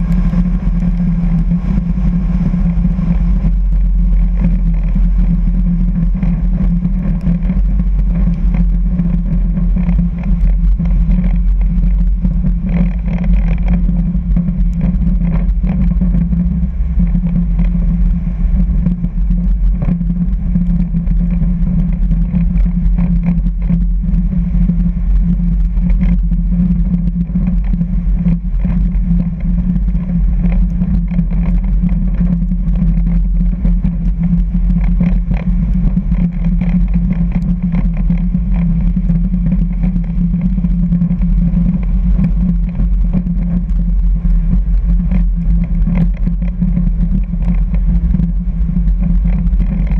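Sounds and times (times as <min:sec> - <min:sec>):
airplane engine and propeller droning: 0:00.0 - 0:49.9.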